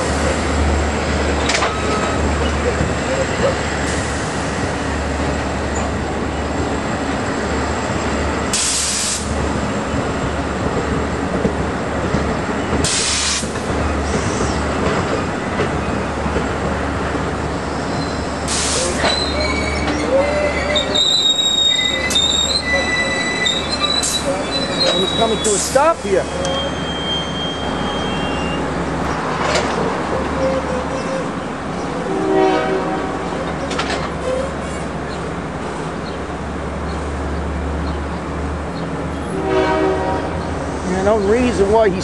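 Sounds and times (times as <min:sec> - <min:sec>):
train wheels rumbling on rail: 0:00.0 - 0:42.0
wheel and brake squeals: 0:17.7 - 0:28.8, 0:33.4 - 0:34.9.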